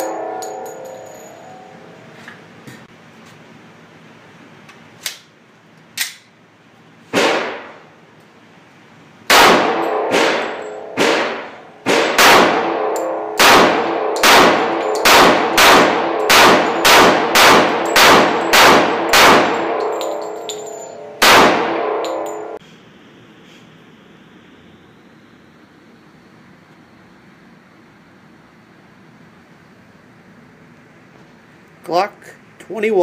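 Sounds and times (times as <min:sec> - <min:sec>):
pistol shots echoing: 0:09.3 - 0:22.6.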